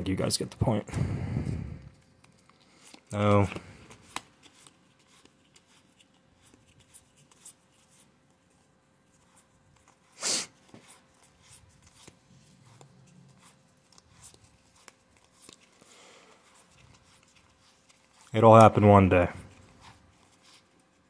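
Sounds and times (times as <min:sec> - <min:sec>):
cards clicking and rustling: 0:01.9 - 0:21.0.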